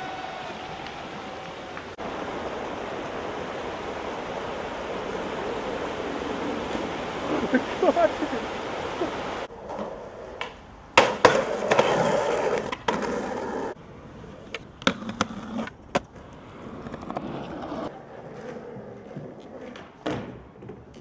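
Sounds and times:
skateboard wheels rolling on concrete: 0.0s - 21.0s
skateboard clacks: 9.6s - 13.8s, 14.4s - 21.0s.

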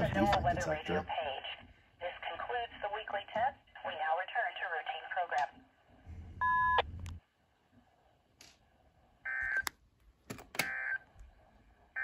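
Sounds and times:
low hum: 5.9s - 8.0s.

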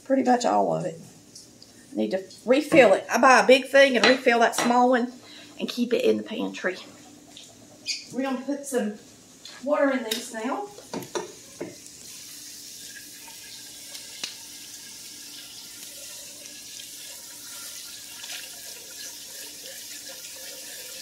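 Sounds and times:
faucet water running into pot: 10.9s - 21.0s.

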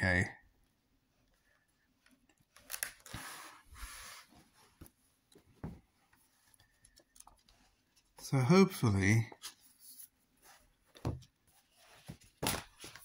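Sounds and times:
book pages turning: 2.4s - 5.0s, 9.4s - 13.0s.

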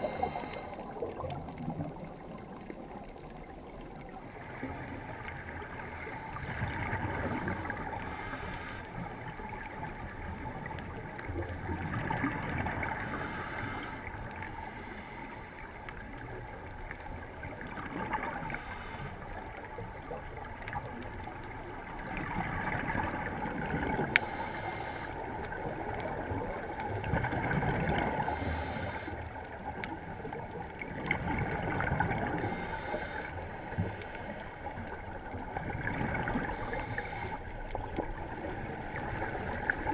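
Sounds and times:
underwater wash: 0.0s - 39.9s
scuba regulator bubbles rushing: 30.4s - 34.0s.

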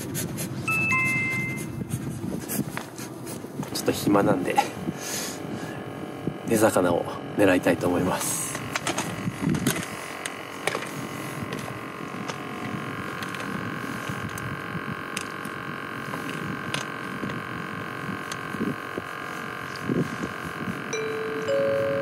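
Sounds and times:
faint steady hum: 0.0s - 22.0s
wind buffeting microphone: 1.7s - 6.5s, 8.6s - 10.1s, 19.8s - 20.9s.

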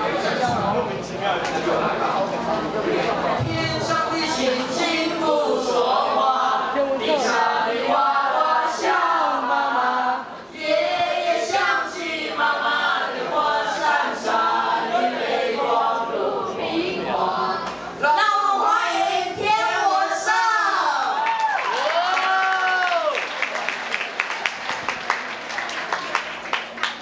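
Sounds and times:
boy and girl singing: 3.4s - 21.2s.

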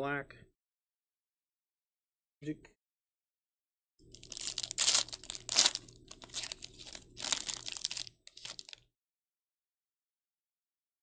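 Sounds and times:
foil pack tearing and crinkling: 4.2s - 8.8s.

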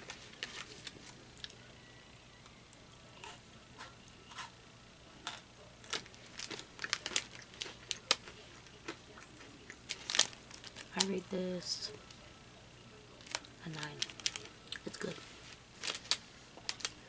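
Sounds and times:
snack packaging crinkling: 0.0s - 1.6s, 5.3s - 11.2s, 13.2s - 17.0s.

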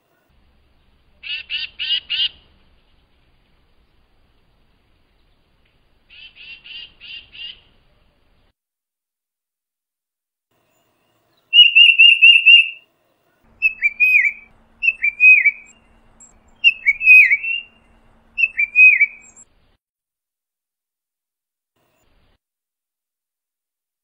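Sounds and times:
bird whistling: 11.5s - 12.8s, 13.6s - 19.4s.

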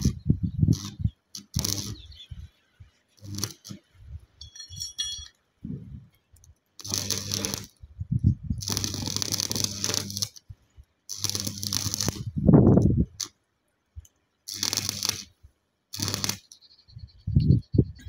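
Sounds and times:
welding arc crackling: 0.0s - 2.2s, 3.2s - 3.9s, 6.8s - 7.8s, 8.6s - 10.5s, 11.1s - 13.3s, 14.5s - 16.6s
short metallic ring: 4.4s - 5.4s.

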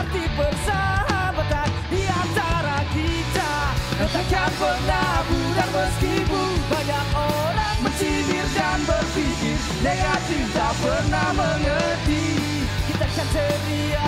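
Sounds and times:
bass: 0.0s - 14.0s
drums: 0.0s - 14.0s
electric guitars: 0.0s - 14.0s
melodic line over band: 0.0s - 14.0s.

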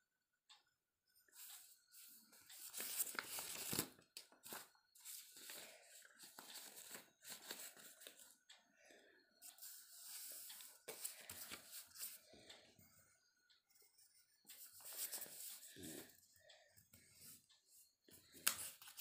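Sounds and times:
drawing paper rustling and crinkling: 1.4s - 8.3s, 9.6s - 12.2s, 14.5s - 16.1s.

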